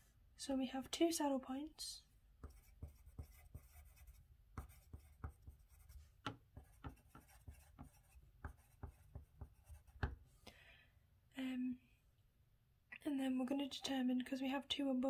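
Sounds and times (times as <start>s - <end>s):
pencil scratching on paper: 2.4s - 10.2s.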